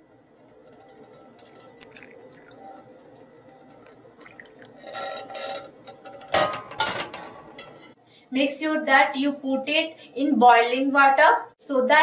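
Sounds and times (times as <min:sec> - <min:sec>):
syrup trickling into water: 0:01.8 - 0:03.0.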